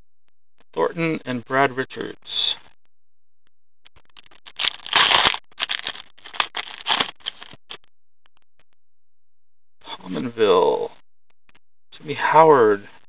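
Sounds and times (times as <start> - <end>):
foil wrapper crinkling and tearing: 4.5 - 7.8.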